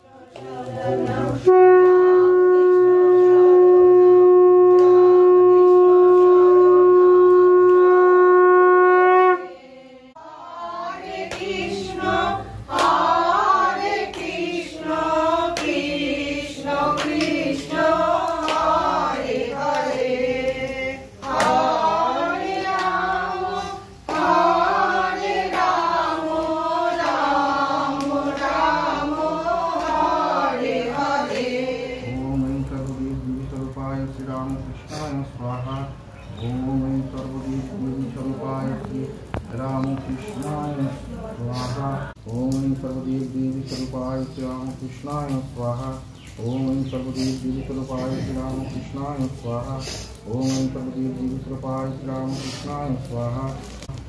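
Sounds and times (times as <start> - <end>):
people singing devotional song: 0.0 - 6.4, 8.7 - 54.0
conch shell blown: 1.3 - 9.8.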